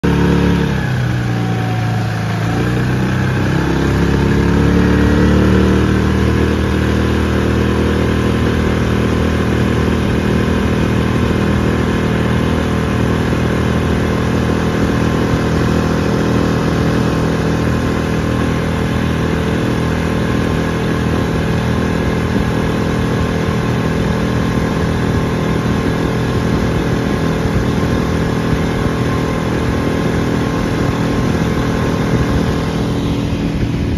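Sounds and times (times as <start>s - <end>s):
outboard motor running: 0.0s - 33.9s.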